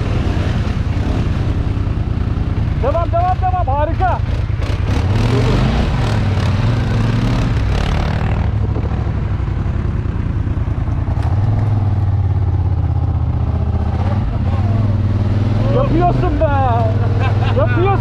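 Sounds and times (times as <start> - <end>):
atv engine droning: 0.0 - 18.0.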